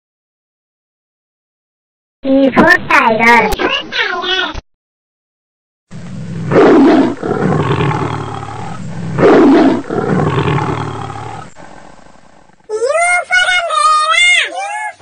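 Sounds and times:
tiger roaring: 6.0 - 12.7.

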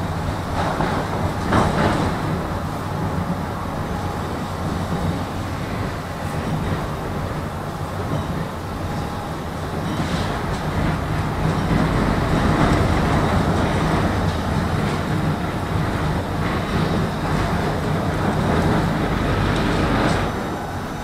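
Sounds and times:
tram wheels rumbling on rails: 0.0 - 21.0.

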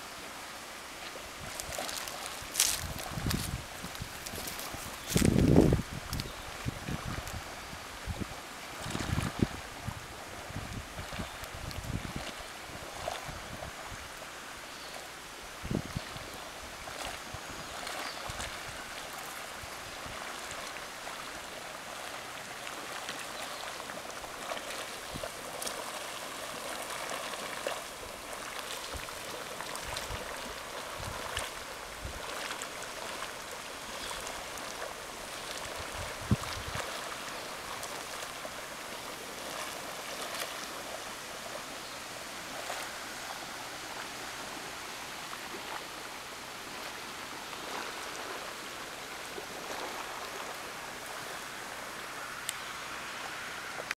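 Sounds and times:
hot spring bubbling: 0.0 - 53.9.

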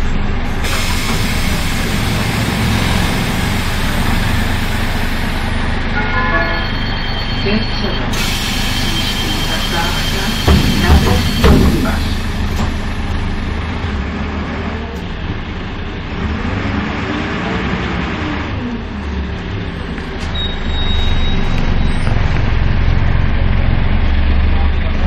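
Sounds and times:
bus diesel engine drone: 0.0 - 25.0
thin high whistle: 8.2 - 12.2.

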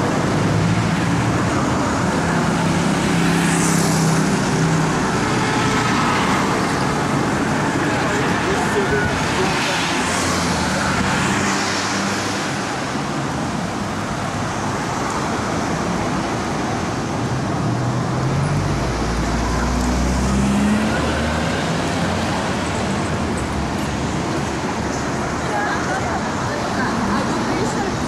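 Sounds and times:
vehicle engine passing by: 19.6 - 22.2.

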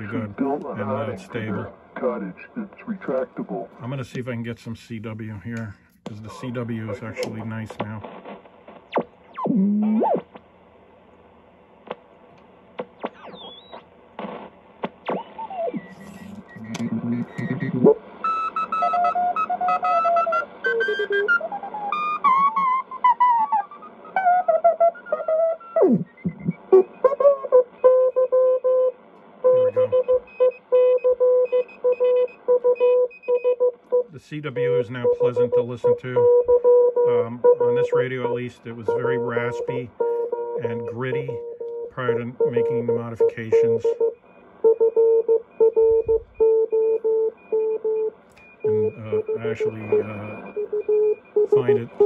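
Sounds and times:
faint radio hiss: 0.0 - 8.9, 10.3 - 18.2, 29.3 - 30.0, 34.1 - 36.3, 37.1 - 40.0, 40.6 - 44.6, 48.3 - 52.0
short radio blips: 6.1 - 8.3, 37.1 - 44.0, 48.4 - 52.0
low morse code beat note: 29.5 - 52.0
faint higher morse code tone: 29.6 - 52.0.

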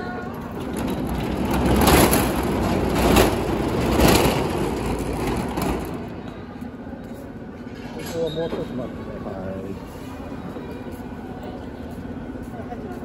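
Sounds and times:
metal fence rattling and scraping: 0.6 - 6.1.

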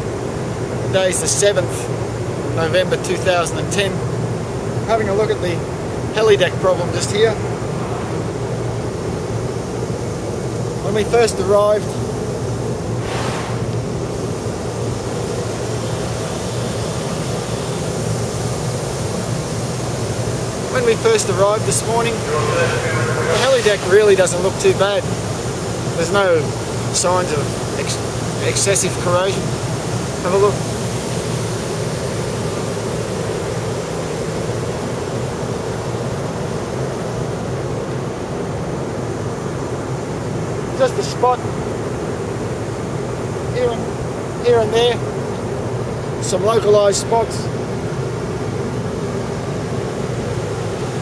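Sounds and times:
low machinery drone: 0.0 - 32.9
constant hiss: 0.0 - 51.0
low hum: 7.1 - 10.8, 20.6 - 25.2
rushing hiss: 12.9 - 31.6.

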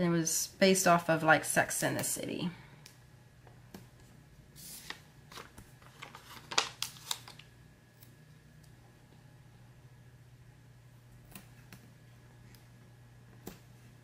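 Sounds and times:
faint steady hum: 0.0 - 14.0
paper rustling and crinkling: 4.6 - 7.5.

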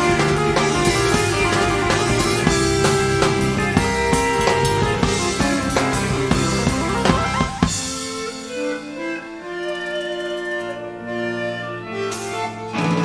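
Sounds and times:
drum kit hitting hard: 0.0 - 8.4
rock band playing: 0.0 - 13.0.

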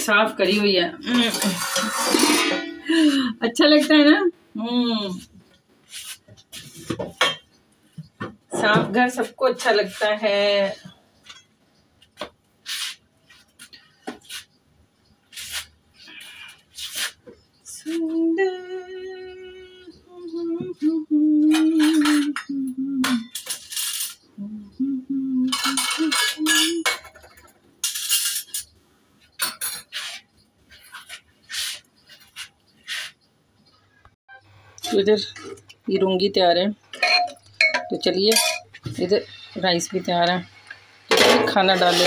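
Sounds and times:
steel dishes and utensils clinking: 1.1 - 3.0, 21.5 - 22.4, 23.2 - 24.2, 25.5 - 28.7, 29.3 - 30.2, 36.9 - 39.5, 41.1 - 42.0
person humming: 17.8 - 23.3, 24.4 - 26.8.

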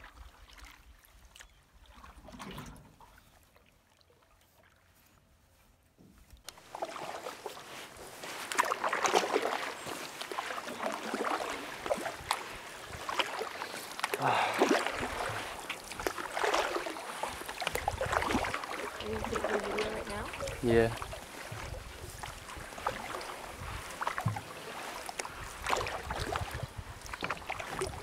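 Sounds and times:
canoe paddles splashing in water: 0.0 - 5.0, 6.5 - 28.0.

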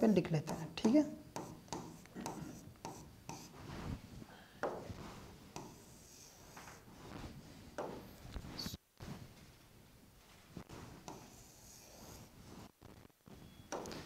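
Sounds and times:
pen scratching on whiteboard: 0.4 - 3.9, 4.9 - 7.4, 10.7 - 12.7.

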